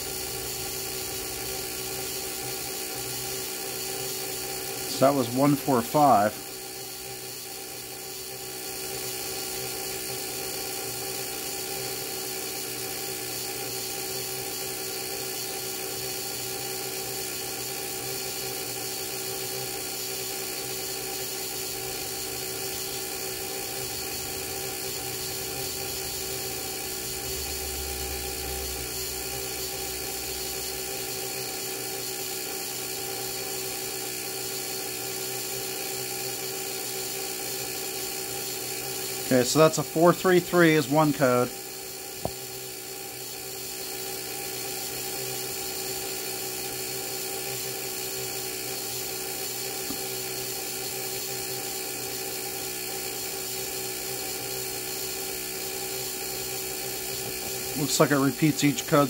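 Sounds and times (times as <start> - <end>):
dashboard buzzer whine: 4.8 - 6.6, 21.3 - 33.4, 38.0 - 43.0, 56.7 - 59.0.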